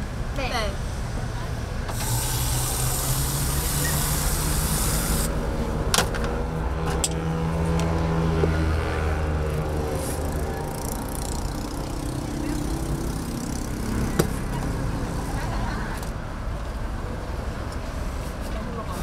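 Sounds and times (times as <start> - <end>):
vehicle engine humming: 0.0 - 19.0
loud hiss: 1.9 - 5.4.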